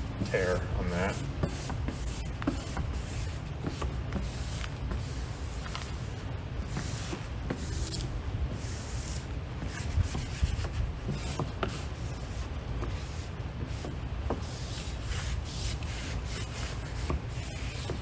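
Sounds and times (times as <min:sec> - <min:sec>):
squeegee scraping on glass: 0:06.8 - 0:18.0.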